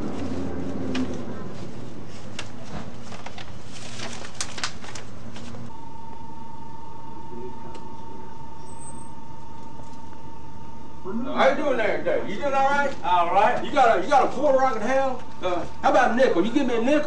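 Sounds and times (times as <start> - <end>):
high-pitched whine: 5.6 - 12.0.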